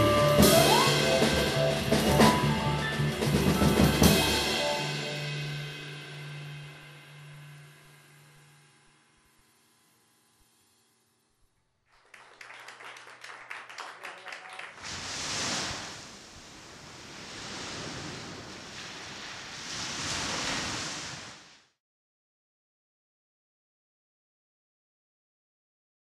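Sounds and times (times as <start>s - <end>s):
jazz band chord: 0.0s - 8.2s
audience clapping: 11.8s - 15.0s
surf washing onto beach: 14.7s - 21.8s.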